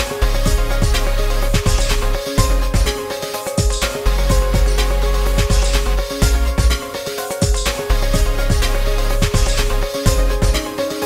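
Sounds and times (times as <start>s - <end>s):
electronic music with deep bass: 0.0s - 11.0s.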